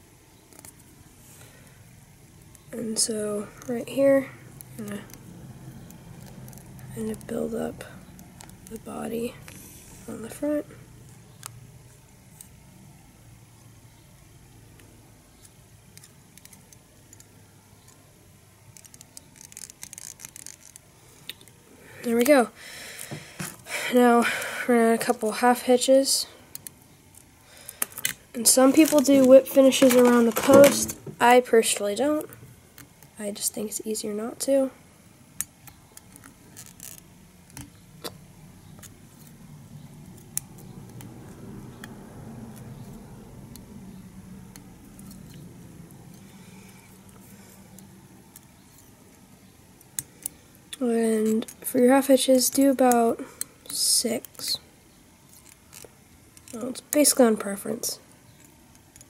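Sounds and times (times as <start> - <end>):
low steady hum: 0.0 - 59.0
thread clicks and scratches: 3.5 - 9.6, 15.3 - 21.6, 26.5 - 31.0, 35.4 - 43.7, 44.4 - 49.2.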